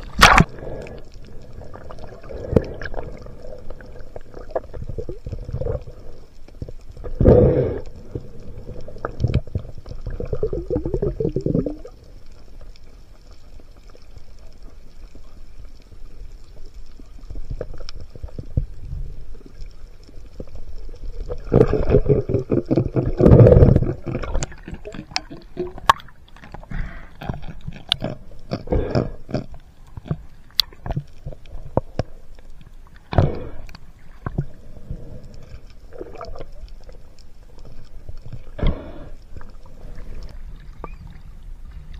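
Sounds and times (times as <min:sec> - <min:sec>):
underwater clicks: 0:00.0 - 0:03.2, 0:21.2 - 0:34.6
bubbling: 0:00.0 - 0:41.9
water swishing and gurgling: 0:00.0 - 0:41.9.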